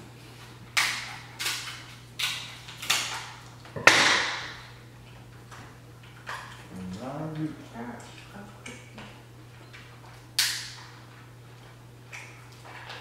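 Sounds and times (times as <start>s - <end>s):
crab shells cracking: 0.8s - 3.9s, 10.4s - 10.9s.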